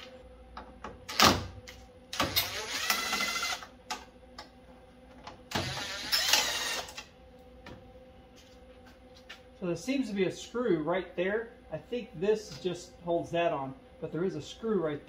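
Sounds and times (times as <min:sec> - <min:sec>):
cordless drill whirring: 0:02.2 - 0:03.6, 0:05.6 - 0:07.0.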